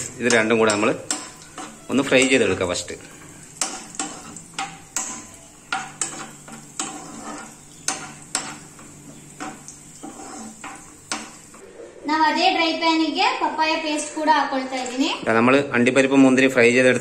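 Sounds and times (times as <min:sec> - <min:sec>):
metal spoon scraping pan: 0:00.0 - 0:11.5
faint sizzle: 0:00.0 - 0:17.0.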